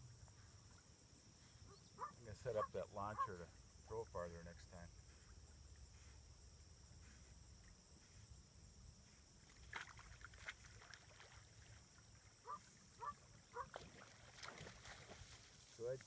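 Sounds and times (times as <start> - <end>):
short faint pitched calls: 1.6 - 3.6.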